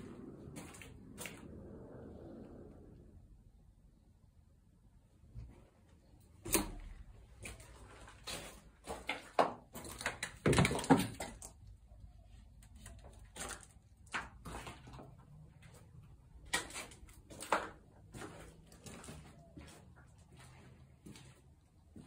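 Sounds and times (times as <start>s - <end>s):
footsteps on gritty floor: 0.0s - 1.8s, 6.6s - 11.4s, 13.0s - 22.0s.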